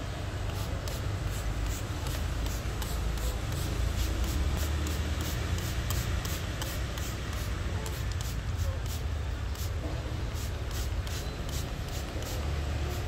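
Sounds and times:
spray bottle squirting: 0.4s - 13.0s.

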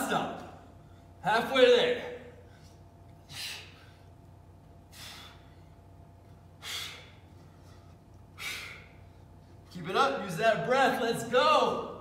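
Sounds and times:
man breathing hard: 2.4s - 4.2s, 4.8s - 9.4s.

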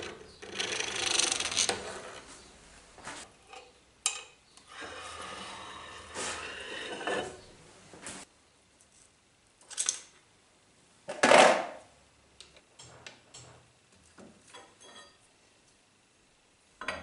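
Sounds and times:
steel plate scraping on steel: 4.7s - 7.5s.

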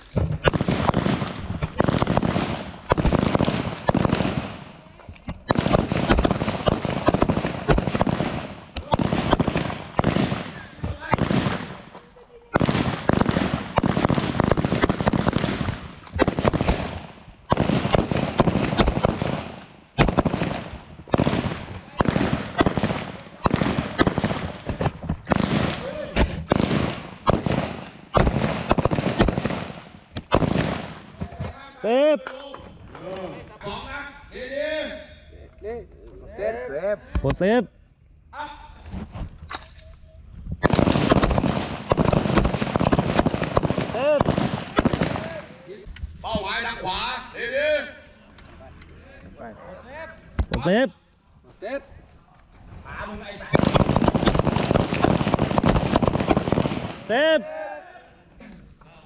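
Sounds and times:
rapid rifle gunfire: 0.0s - 4.7s, 5.5s - 11.8s, 12.5s - 31.0s, 40.6s - 45.4s, 53.4s - 57.1s.

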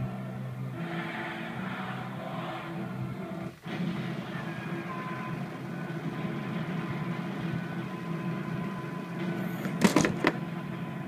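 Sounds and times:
steady mechanical hum: 0.0s - 11.0s
plastic toy bricks clattering: 9.6s - 10.4s.

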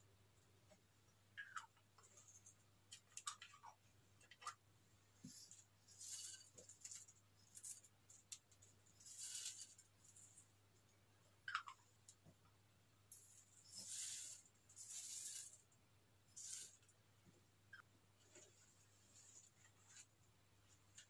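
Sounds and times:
sequins rattling in container: 13.1s - 15.6s.

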